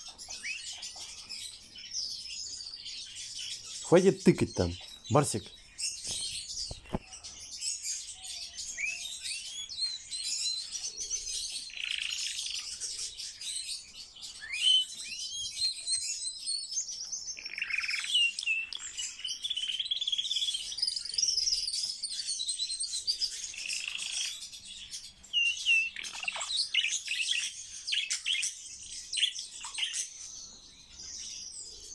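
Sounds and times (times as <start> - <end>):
starling singing: 3.8 - 5.5.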